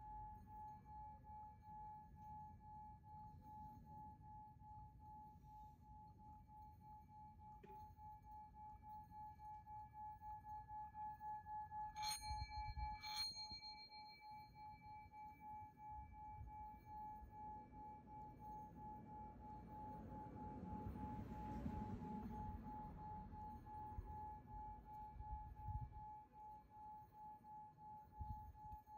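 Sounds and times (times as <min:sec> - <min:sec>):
pulsing bell-like tone: 0:00.0 - 0:28.9
glassy chime strikes: 0:12.0 - 0:14.8.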